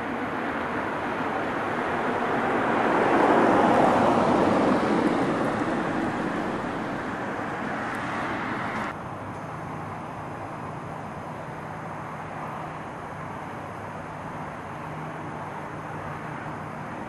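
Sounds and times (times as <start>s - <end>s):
vehicle passing: 0.6s - 8.9s.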